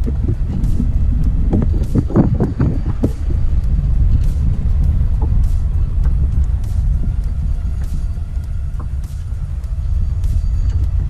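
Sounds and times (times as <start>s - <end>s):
faint clicks: 0.0s - 11.0s
wind buffeting microphone: 0.0s - 11.0s.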